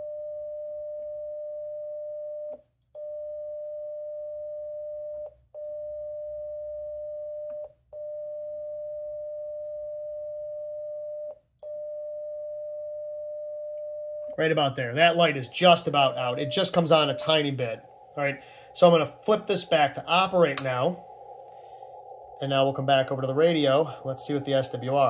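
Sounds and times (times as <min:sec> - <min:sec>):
steady mid-pitched radio beep: 0:14.4 - 0:25.0.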